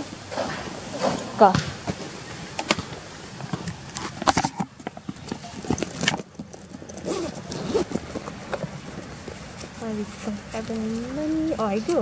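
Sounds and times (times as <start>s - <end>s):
bag rustling: 3.8s - 11.2s.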